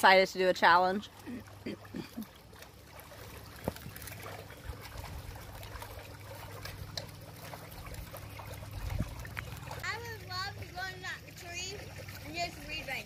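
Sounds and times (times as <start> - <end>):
pool water trickling: 0.0 - 13.0
steady low hum: 0.0 - 13.0.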